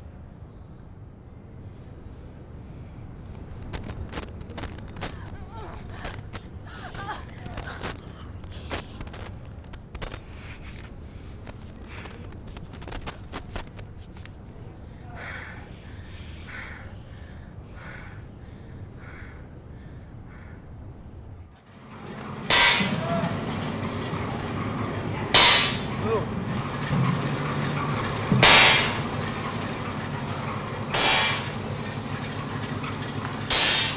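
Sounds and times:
hammer clanging on steel: 22.4s - 23.5s, 25.3s - 26.1s, 28.3s - 29.2s, 30.9s - 31.6s, 33.4s - 33.9s.

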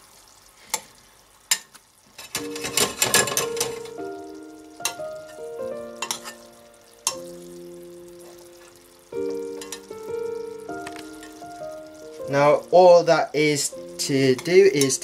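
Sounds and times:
sauce bubbling in a saucepan: 0.0s - 15.0s
metal spoon clinking on pan: 1.5s - 3.9s, 4.8s - 5.4s, 6.0s - 7.3s, 9.6s - 9.9s, 14.4s - 15.0s
soft background music: 2.4s - 15.0s.

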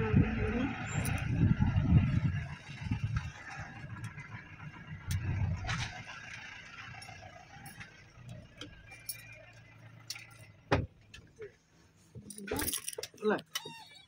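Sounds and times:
car cabin rumble: 0.0s - 9.1s
light clicks and clinks: 12.2s - 13.8s.

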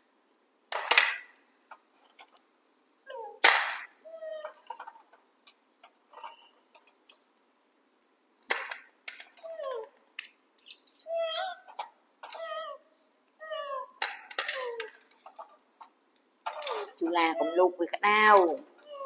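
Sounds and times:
monkeys squeaking and calling: 9.6s - 12.8s.

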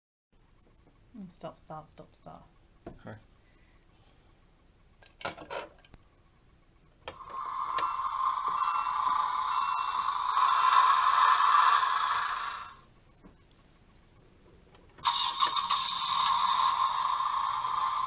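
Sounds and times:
buzzy electronic truck noise: 7.2s - 12.9s, 15.0s - 18.0s.

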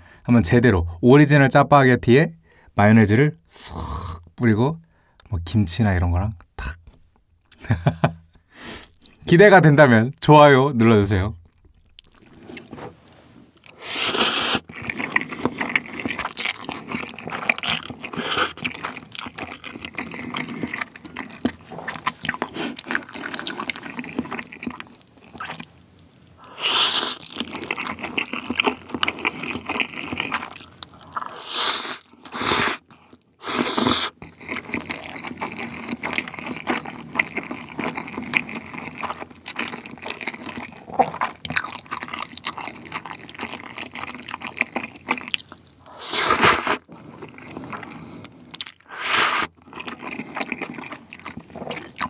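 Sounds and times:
wet chewing and mouth sounds: 8.8s - 9.2s, 11.4s - 52.0s
loud noodle slurps: 13.7s - 19.1s, 26.4s - 28.4s, 31.1s - 32.8s, 33.4s - 34.2s, 45.8s - 52.0s.

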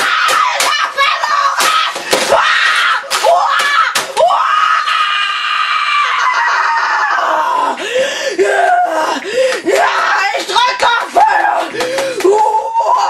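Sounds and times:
boy yelling: 0.0s - 2.0s.

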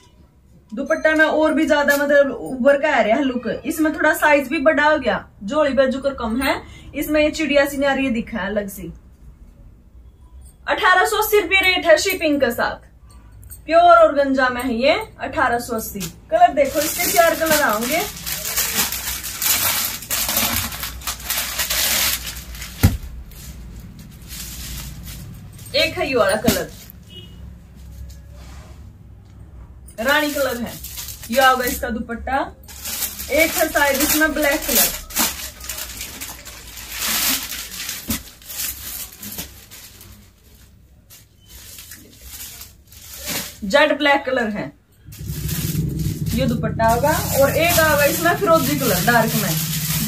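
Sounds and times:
fabric and plastic rustling: 15.6s - 28.8s, 30.0s - 32.0s, 32.7s - 44.1s, 45.1s - 50.0s.

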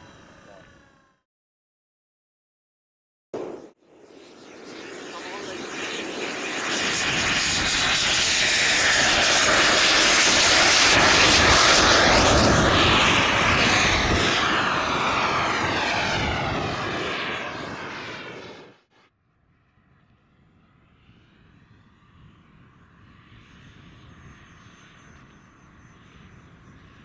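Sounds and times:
model jet turbine rush and whine: 0.0s - 1.2s, 3.4s - 19.1s.

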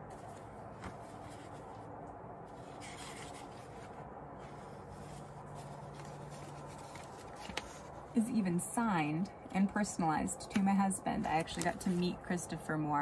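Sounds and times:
book pages rustling: 0.0s - 8.2s, 11.2s - 12.2s
faint steady hum: 0.0s - 13.0s.

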